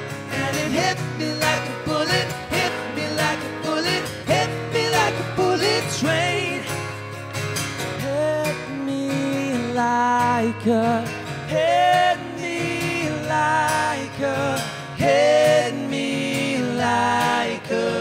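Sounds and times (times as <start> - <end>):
wordless sung vocals: 0.0 - 7.2, 8.0 - 18.0
acoustic guitars strumming: 0.0 - 18.0.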